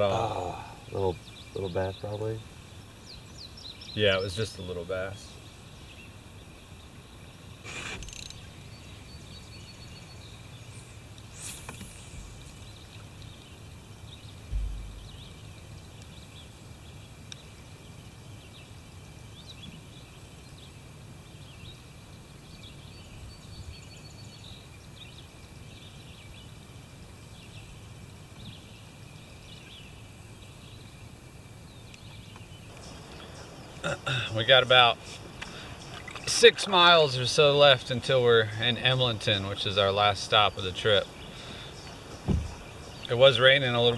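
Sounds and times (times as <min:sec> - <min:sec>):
river low rumble: 0:00.0 - 0:19.4, 0:30.3 - 0:43.9
bird chirps: 0:00.0 - 0:26.6, 0:28.4 - 0:43.9
low thump: 0:14.5 - 0:15.4, 0:42.2 - 0:42.6.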